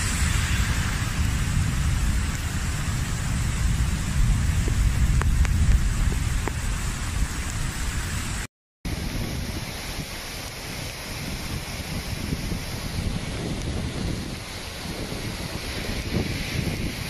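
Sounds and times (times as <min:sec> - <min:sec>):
heavy rain: 0:00.0 - 0:17.0
rushing floodwater: 0:00.0 - 0:17.0
wind rumble on microphone: 0:00.0 - 0:17.0.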